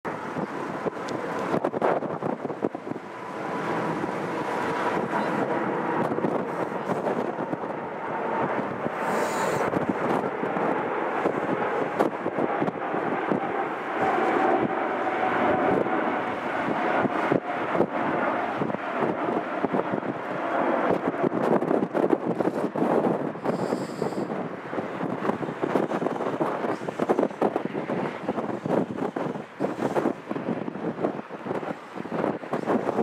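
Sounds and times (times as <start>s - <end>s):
jet engines rumbling: 0.0s - 33.0s
wind buffeting microphone: 0.0s - 33.0s.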